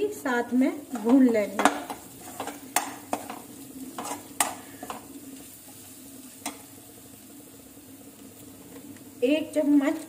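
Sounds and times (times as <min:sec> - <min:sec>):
faint sizzle: 0:00.0 - 0:10.0
spoon scraping metal pan: 0:00.9 - 0:05.1.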